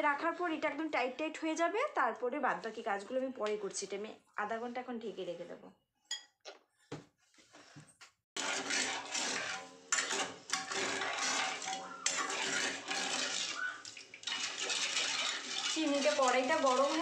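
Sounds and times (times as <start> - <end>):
metal ladle scraping a pan: 8.4 - 17.0.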